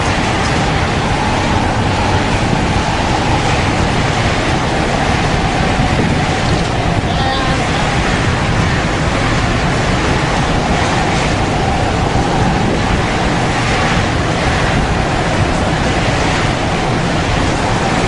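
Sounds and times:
heavy waves: 0.0s - 18.0s
storm wind on microphone: 0.0s - 18.0s.

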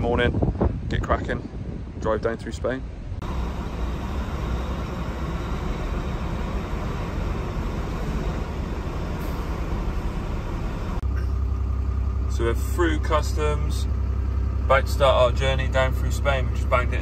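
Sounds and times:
truck diesel engine humming: 2.8s - 17.0s.

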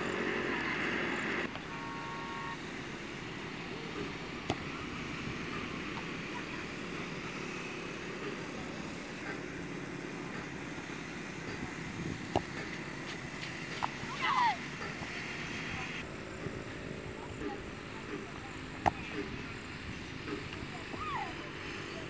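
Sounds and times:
outdoor background noise: 0.0s - 22.0s.

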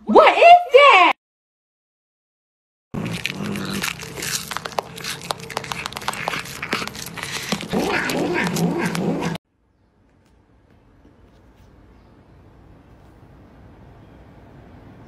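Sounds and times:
cat chewing crunchily: 3.0s - 9.4s
cat low vocal sounds: 3.0s - 9.4s.

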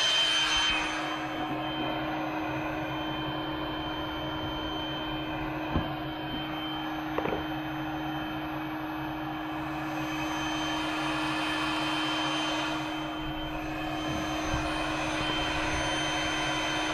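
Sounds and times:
steady machine hum: 0.0s - 16.9s
rattle of knocks: 7.2s - 7.4s.

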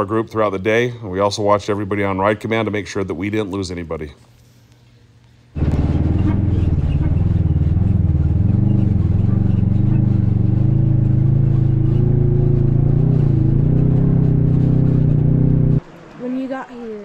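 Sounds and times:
vehicle engine running from inside cab: 5.6s - 17.0s.

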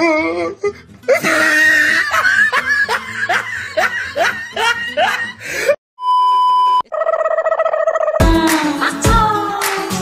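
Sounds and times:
loud laughter: 1.1s - 5.4s.

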